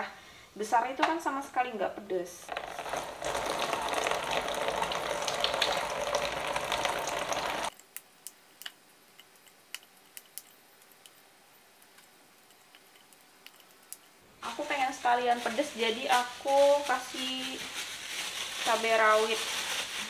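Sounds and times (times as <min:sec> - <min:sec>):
tap water running: 0:02.5 - 0:07.7.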